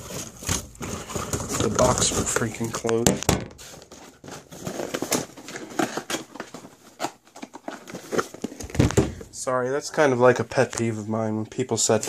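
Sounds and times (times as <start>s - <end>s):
cardboard flaps scraping and crinkling: 0.0s - 3.0s, 3.6s - 9.2s.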